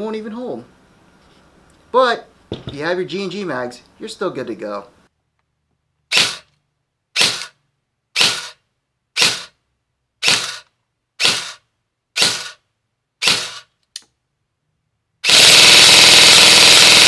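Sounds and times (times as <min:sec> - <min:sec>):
rapid full-auto airsoft fire: 0:06.1 - 0:06.5, 0:07.2 - 0:07.6, 0:08.2 - 0:08.6, 0:09.2 - 0:09.6, 0:10.2 - 0:11.6, 0:12.2 - 0:12.6, 0:13.2 - 0:13.7, 0:15.2 - 0:17.0
airsoft gun single shots: 0:08.2 - 0:08.6, 0:09.2 - 0:09.5.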